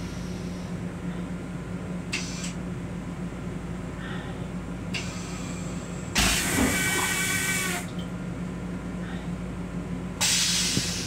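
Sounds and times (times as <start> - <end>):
railcar low hum: 0.0 - 11.0
pressurised air hissing: 10.2 - 11.0.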